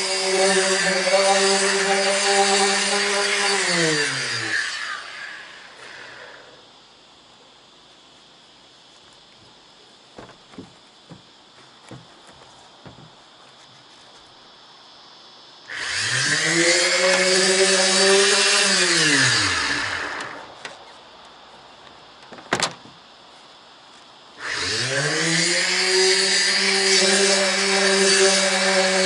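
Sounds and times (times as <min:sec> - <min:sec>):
electric sander whining: 0:00.0 - 0:06.6, 0:15.7 - 0:20.8, 0:24.4 - 0:29.0.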